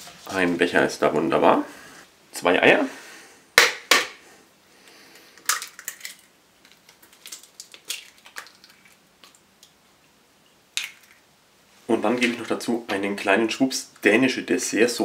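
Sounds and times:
eggshell crackling: 4.9 - 11.4.

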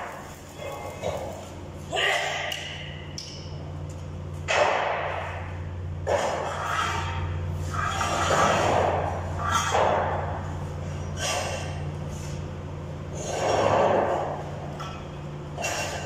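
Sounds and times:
welding arc crackling and hissing: 0.0 - 1.9
steady low hum: 0.0 - 16.0.

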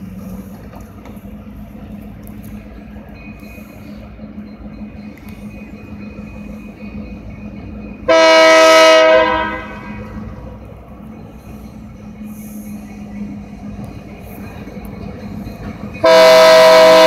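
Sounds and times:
low diesel engine drone: 0.0 - 17.0
locomotive air horn blast: 8.1 - 10.1, 16.0 - 17.0.

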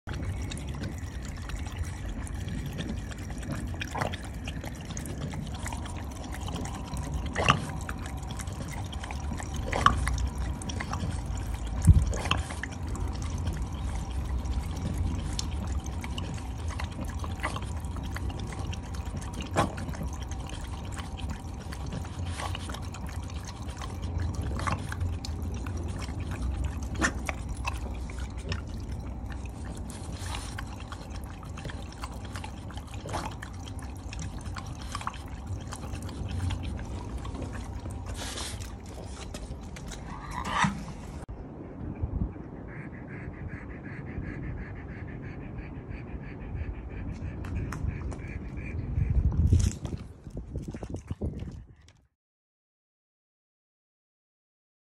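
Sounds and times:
dog lapping water: 0.0 - 41.3, 43.4 - 52.1
water trickling from tap: 0.1 - 40.4.

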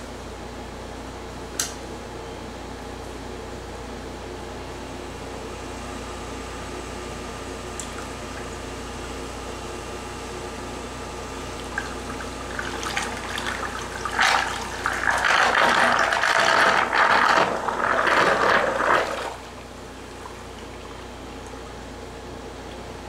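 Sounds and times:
mixer motor hum: 7.8 - 23.0
water churning and splashing: 11.6 - 21.5.

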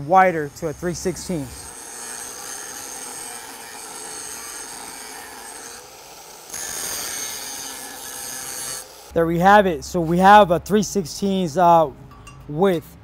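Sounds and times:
angle grinder grinding steel: 0.0 - 9.2.

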